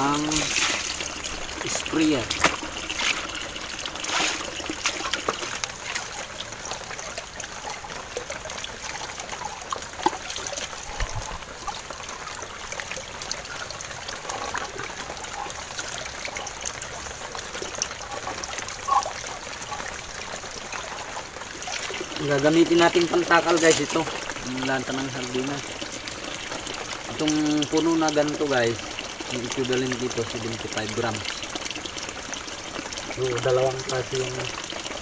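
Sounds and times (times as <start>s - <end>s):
shallow water trickling: 0.0s - 35.0s
small water splashes: 0.0s - 35.0s.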